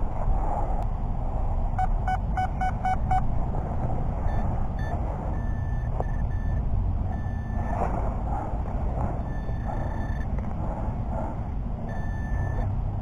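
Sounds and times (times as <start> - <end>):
low steady rumble: 0.0 - 13.0
higher beeps and broken tone: 1.8 - 3.3, 4.3 - 7.8, 9.2 - 10.4, 11.9 - 12.7
metal detector beeps: 1.8 - 3.3, 4.3 - 7.8, 9.2 - 10.4, 11.9 - 12.7.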